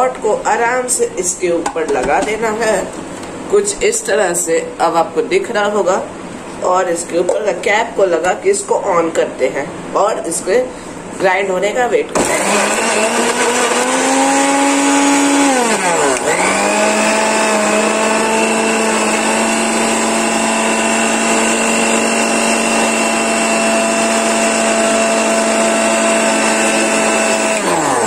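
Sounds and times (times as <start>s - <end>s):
mixer grinder whining: 12.1s - 28.0s.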